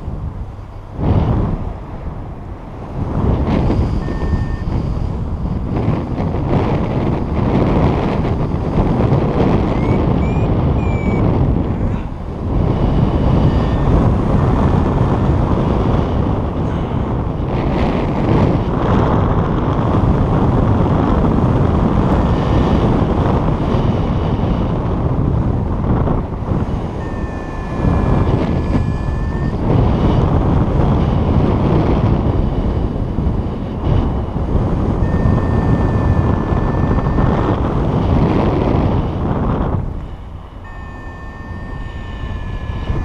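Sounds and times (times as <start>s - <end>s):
wind buffeting microphone: 0.0s - 43.0s
faint high tones: 3.7s - 5.0s, 26.9s - 29.7s, 35.0s - 37.7s, 40.0s - 43.0s.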